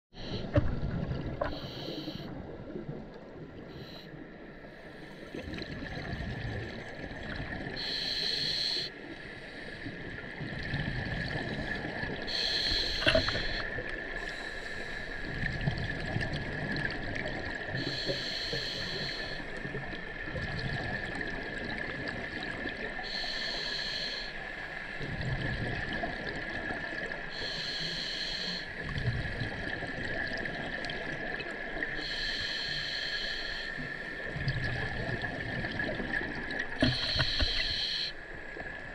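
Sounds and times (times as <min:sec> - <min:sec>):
exhaled air bubbling underwater: 0:00.2 - 0:38.9
regulator hissing inhale: 0:01.4 - 0:02.3, 0:03.7 - 0:05.4, 0:07.8 - 0:09.9, 0:11.6 - 0:15.3, 0:17.8 - 0:19.6, 0:23.0 - 0:24.9, 0:27.3 - 0:28.8, 0:31.9 - 0:34.3, 0:36.8 - 0:38.3
faint high whine: 0:32.0 - 0:34.1, 0:36.8 - 0:38.4.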